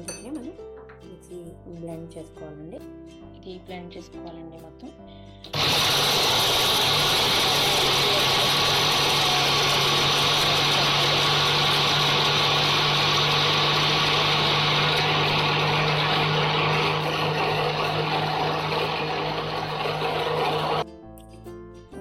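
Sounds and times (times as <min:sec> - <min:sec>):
mixer grinder whirring: 0:05.5 - 0:20.8.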